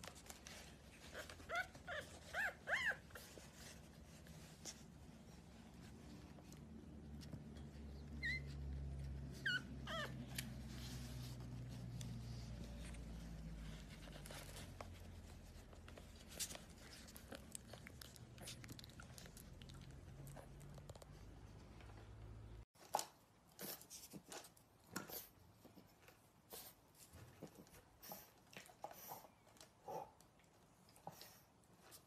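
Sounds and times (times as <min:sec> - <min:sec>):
puppies whimpering: 0:07.9 - 0:10.4.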